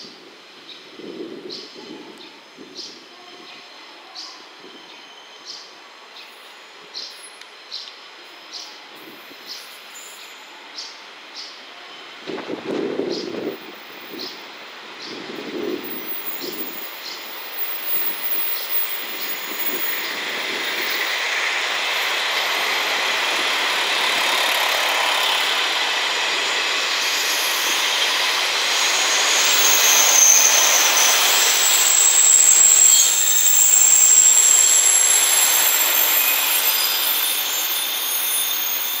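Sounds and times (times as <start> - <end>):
train wheels rolling on rail: 12.2 - 39.0
high wheel squealing: 15.8 - 39.0.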